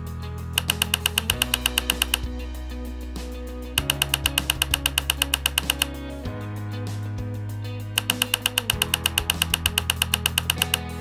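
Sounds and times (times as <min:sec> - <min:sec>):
background music low notes: 0:00.0 - 0:11.0
rapid evenly spaced clicks: 0:00.6 - 0:02.4, 0:03.8 - 0:06.2, 0:08.0 - 0:11.0.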